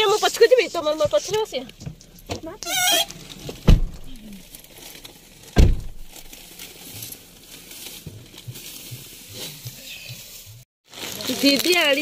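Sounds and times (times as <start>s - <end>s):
dull thump: 3.5s - 4.2s, 5.6s - 6.3s
plastic snack packet crinkling: 10.9s - 12.0s.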